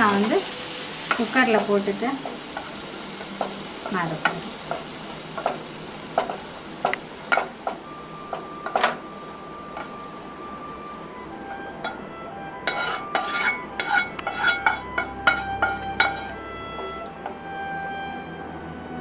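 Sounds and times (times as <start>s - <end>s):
faint sizzle: 0.0s - 17.4s
spatula scraping a pan: 12.6s - 17.0s.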